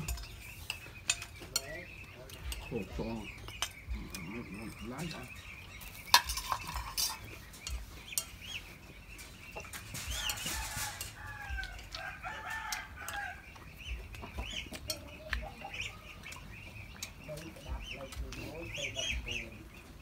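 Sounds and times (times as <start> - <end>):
spoons clicking on plates: 0.0 - 4.8, 5.8 - 8.6, 9.5 - 18.4
hens clucking: 0.0 - 20.0
small birds chirping: 0.0 - 20.0
rooster crowing: 10.1 - 13.4.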